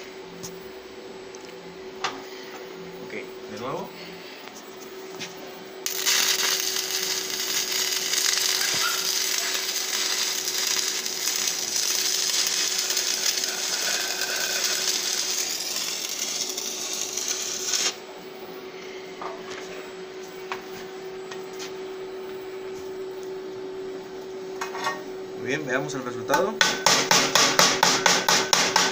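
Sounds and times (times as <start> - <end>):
steady hum: 0.0 - 28.9
welding arc crackling: 5.8 - 18.0.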